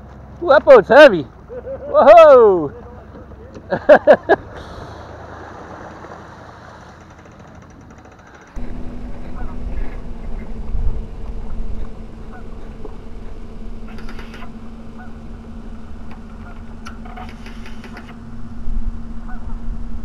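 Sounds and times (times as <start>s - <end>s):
engine hum: 0.0s - 20.0s
waterfowl honking and quacking: 9.0s - 10.6s, 11.4s - 18.3s, 19.2s - 19.6s
sharp clicks: 13.9s - 14.6s, 16.0s - 18.2s.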